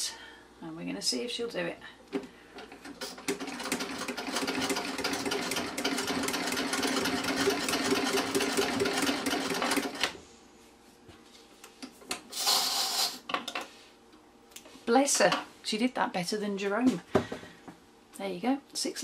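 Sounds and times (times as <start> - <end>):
treadle sewing machine clattering: 3.2 - 10.1.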